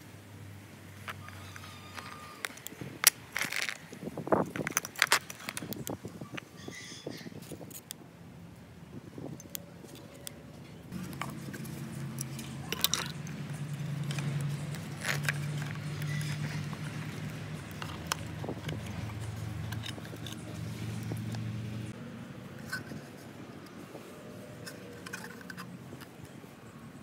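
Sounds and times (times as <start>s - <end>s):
small parts clicking and clinking: 1.0s - 6.5s, 7.4s - 8.0s, 9.3s - 21.5s, 24.6s - 26.4s.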